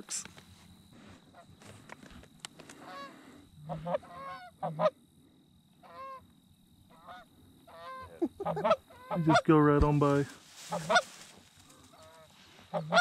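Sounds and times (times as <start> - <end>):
geese honking: 2.8 - 5.0, 5.8 - 6.3, 6.9 - 9.6, 10.6 - 13.0.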